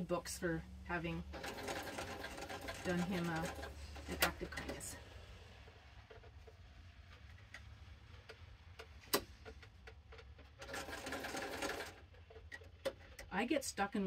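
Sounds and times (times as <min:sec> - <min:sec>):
electric sewing machine stitching: 0:01.2 - 0:05.0, 0:10.6 - 0:12.1.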